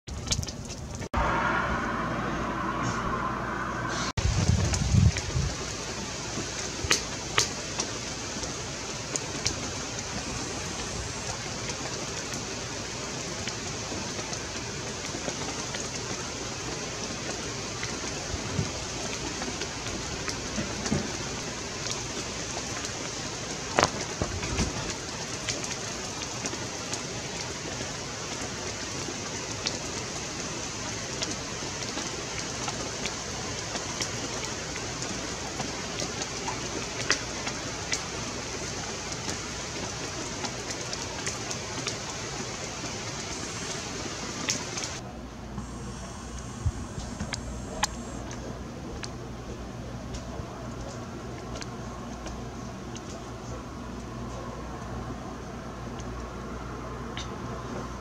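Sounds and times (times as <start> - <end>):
rain falling hiss: 0.2 - 45.0, 45.6 - 58.0
raindrop taps: 6.3 - 30.1, 30.9 - 45.0.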